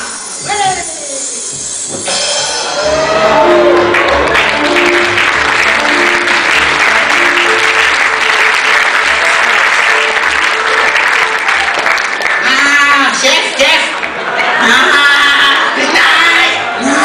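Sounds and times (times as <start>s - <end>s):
audience applauding: 2.8s - 14.9s.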